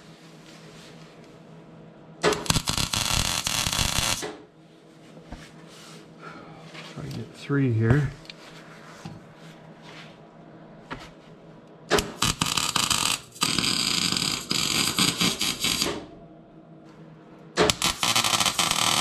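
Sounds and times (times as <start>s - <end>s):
welder arc: 2.2s - 4.4s, 11.9s - 16.1s, 17.6s - 19.0s.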